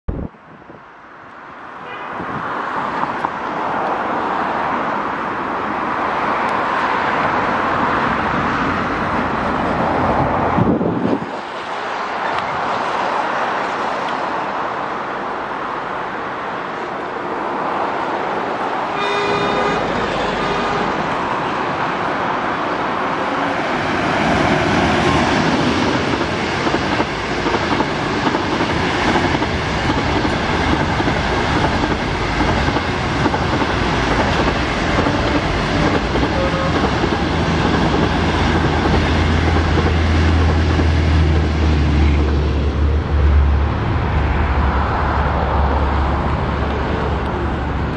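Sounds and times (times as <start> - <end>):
train horn blast: 1.8 - 2.2, 18.9 - 21.6, 34.8 - 37.3
train rushing rumble: 2.4 - 14.8, 17.2 - 47.9
coaches rolling on rails: 2.8 - 47.9.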